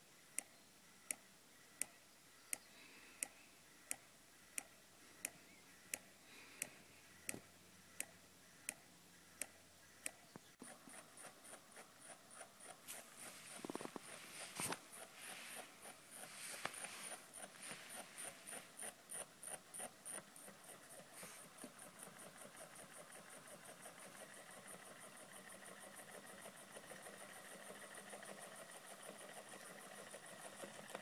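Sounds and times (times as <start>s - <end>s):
thin steady whine: 2.8s - 31.0s
solenoid engine clacking: 10.6s - 31.0s.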